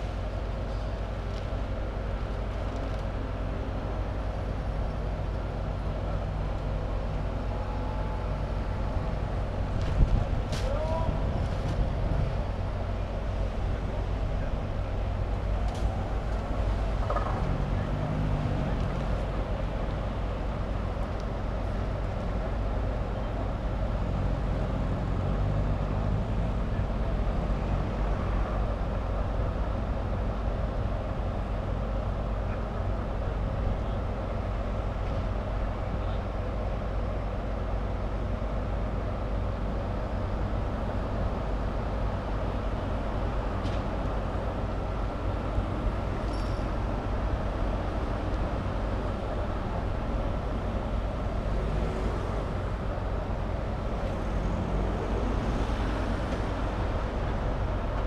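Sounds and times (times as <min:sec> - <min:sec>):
diesel engine running: 0:00.0 - 0:58.0
faint light clinks: 0:46.3 - 0:46.8.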